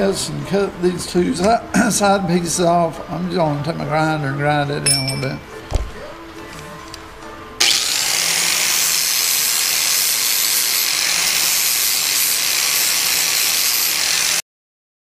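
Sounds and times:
angle grinder grinding: 7.6s - 14.4s.

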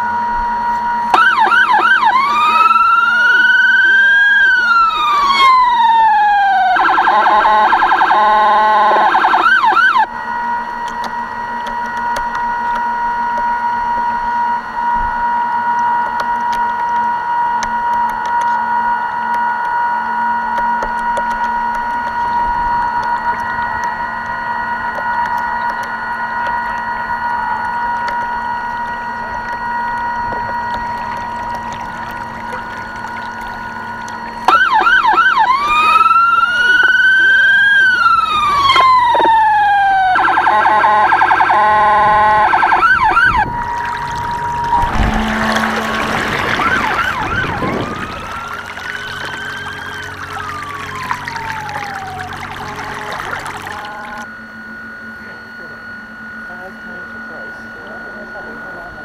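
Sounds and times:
electronic siren wailing and yelping: 0.0s - 10.1s, 20.9s - 54.3s
steady high whine: 0.0s - 59.0s.

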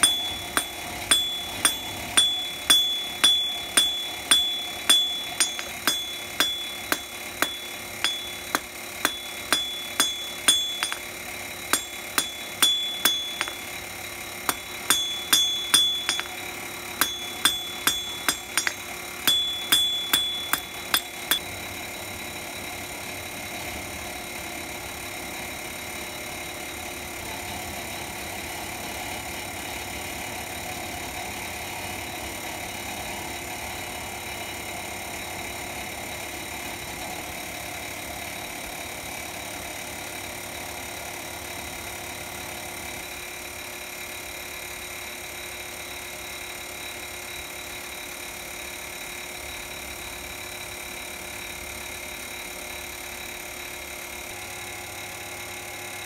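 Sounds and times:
hammer striking steel on anvil: 0.0s - 13.8s, 14.5s - 21.4s
steady background hum: 0.0s - 21.4s.

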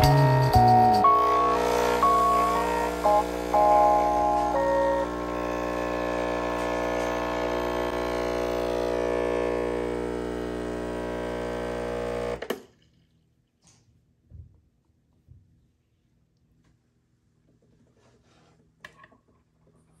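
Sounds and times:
background music: 0.0s - 5.1s
espresso machine pump humming: 1.0s - 12.5s.

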